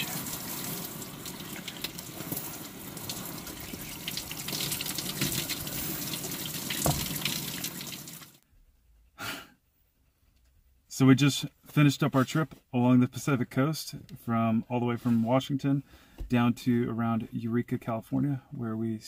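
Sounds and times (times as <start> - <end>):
shower water spraying on person: 0.0 - 8.4.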